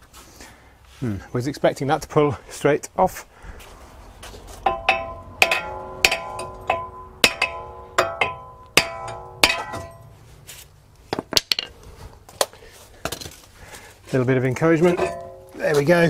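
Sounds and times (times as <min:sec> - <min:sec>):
hammer striking ringing steel disc: 0:04.6 - 0:10.2, 0:14.9 - 0:15.7.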